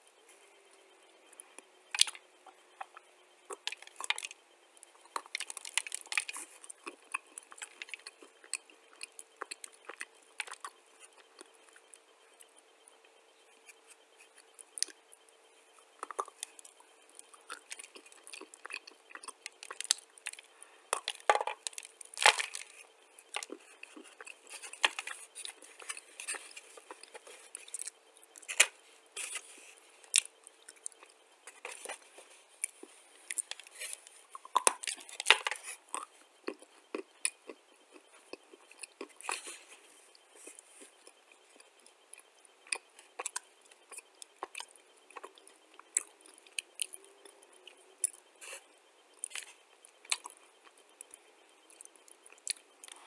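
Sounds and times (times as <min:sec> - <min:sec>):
dry clay crunching: 0:17.5 - 0:30.3.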